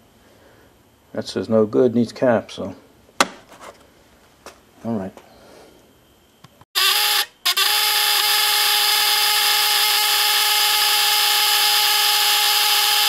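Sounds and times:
buzz coil buzzing: 0:06.8 - 0:13.0.

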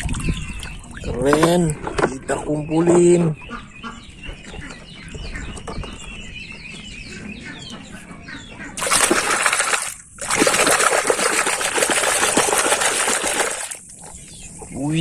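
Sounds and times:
hand splashing muddy water: 0:08.8 - 0:14.1.

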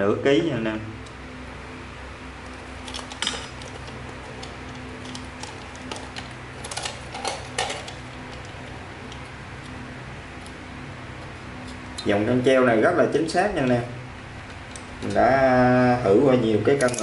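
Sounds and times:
faint steady hum: 0:00.0 - 0:17.0
light metallic clicks and clinks: 0:16.8 - 0:17.0.

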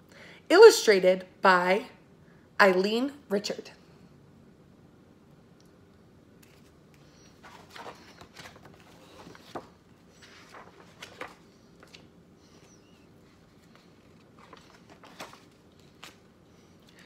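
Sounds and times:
faint steady hum: 0:00.0 - 0:17.0
book pages rustling: 0:06.4 - 0:17.0.

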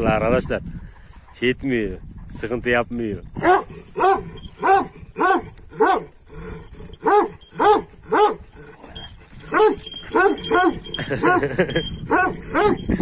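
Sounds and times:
dog barking: 0:03.4 - 0:06.1, 0:07.0 - 0:08.4, 0:12.1 - 0:12.9.

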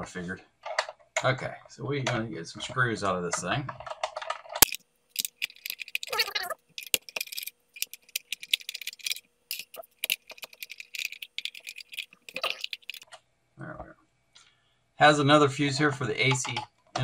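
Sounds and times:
small screws clicking and rattling: 0:03.9 - 0:13.0.

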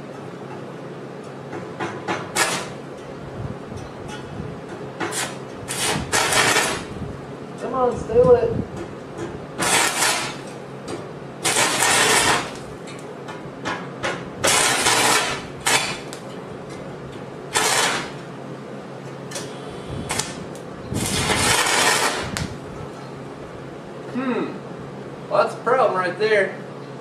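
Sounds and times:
welding arc crackling: 0:02.3 - 0:02.8, 0:05.0 - 0:07.0, 0:09.6 - 0:10.6, 0:11.4 - 0:12.8, 0:14.4 - 0:16.3, 0:17.5 - 0:18.3, 0:19.3 - 0:22.8.

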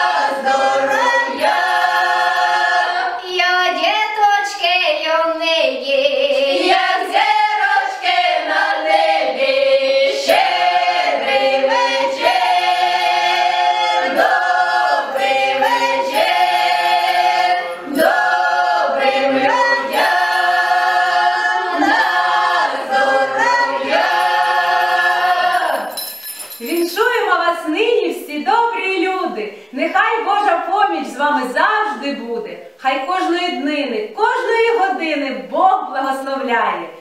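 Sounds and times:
choir singing a carol: 0:00.0 - 0:03.4, 0:05.9 - 0:26.0.

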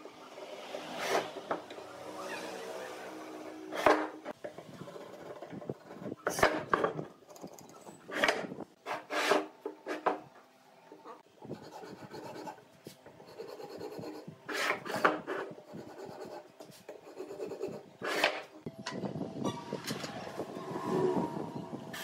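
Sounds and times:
marking gauge scratching wood: 0:13.2 - 0:18.5.

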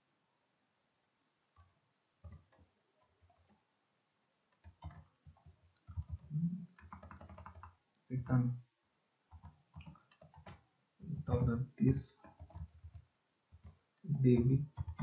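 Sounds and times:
keyboard typing: 0:01.6 - 0:03.6, 0:04.5 - 0:08.5, 0:09.3 - 0:15.0.

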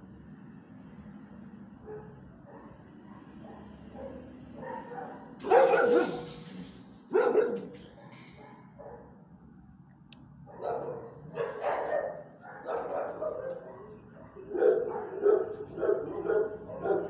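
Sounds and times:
dog barking: 0:01.9 - 0:06.5, 0:07.1 - 0:09.1, 0:10.5 - 0:17.0.

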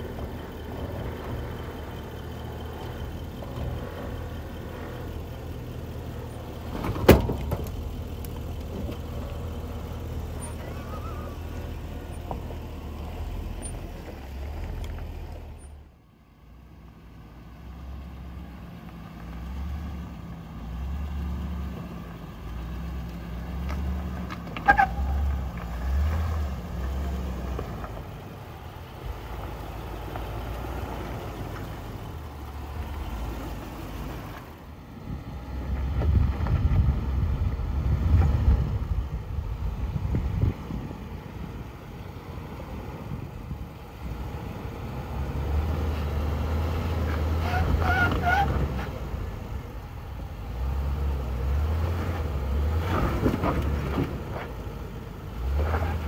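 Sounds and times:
engine and drivetrain rumble: 0:00.0 - 0:56.0
high squeak: 0:10.4 - 0:11.4.

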